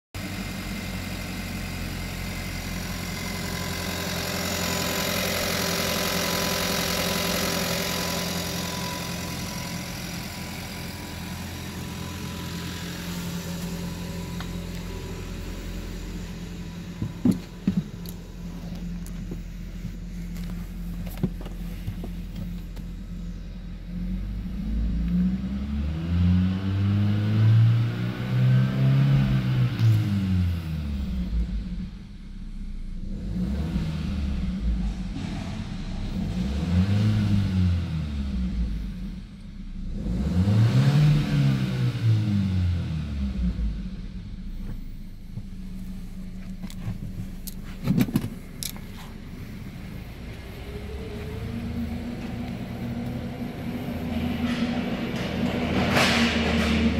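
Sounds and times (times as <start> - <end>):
car engine idling: 0.2 - 25.5, 30.2 - 40.2, 42.2 - 56.9
engine revving: 1.4 - 19.4, 23.9 - 56.9
engine knocks: 16.9 - 23.0, 44.5 - 56.9.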